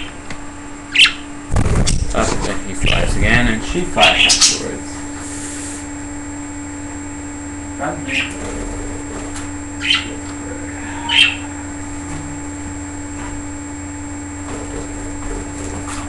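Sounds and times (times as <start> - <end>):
steady background hum: 0.0 - 16.0
budgerigars chirping: 0.9 - 1.2, 4.0 - 4.6, 8.0 - 8.4, 9.8 - 10.2, 10.9 - 11.5.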